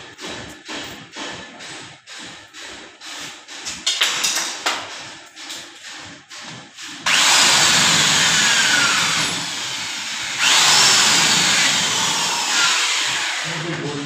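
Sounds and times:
electric drill boring into metal: 7.1 - 13.7.

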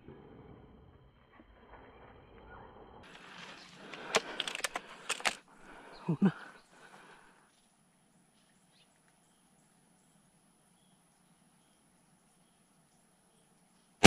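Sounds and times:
sharp clicks and knocks: 3.9 - 5.4.

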